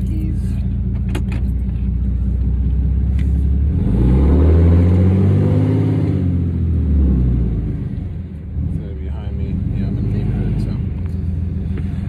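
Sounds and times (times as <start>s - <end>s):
diesel truck engine accelerating: 0.0s - 12.0s.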